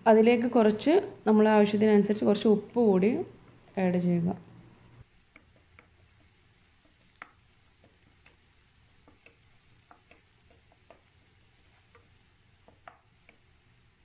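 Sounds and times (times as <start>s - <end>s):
onions frying in oil: 0.0s - 14.0s
wooden spatula stirring clicks: 5.1s - 14.0s.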